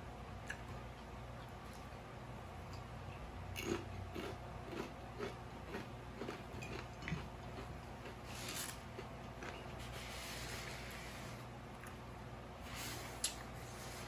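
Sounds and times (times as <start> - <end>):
chip crunching while chewing: 3.5 - 9.8.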